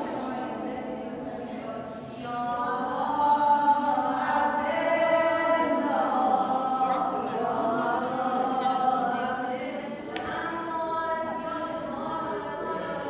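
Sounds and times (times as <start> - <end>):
choir chanting: 2.3 - 11.5.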